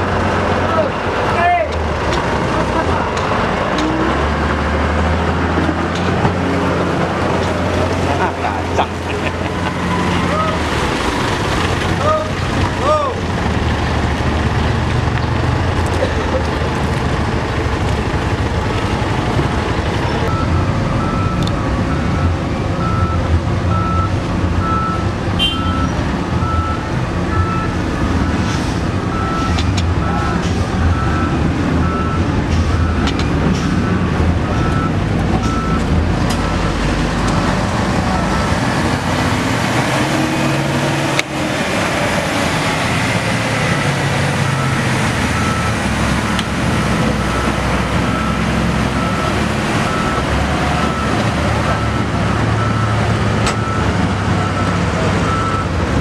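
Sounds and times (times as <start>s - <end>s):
diesel engines rumbling: 0.0s - 56.0s
reversing alarm beeping: 20.3s - 28.5s, 29.1s - 33.1s, 44.5s - 46.6s, 47.2s - 55.8s.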